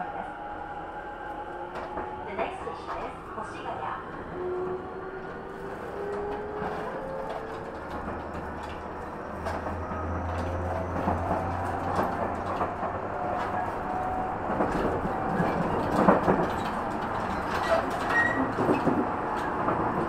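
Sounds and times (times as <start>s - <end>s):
train wheel rumble: 0.0s - 20.0s.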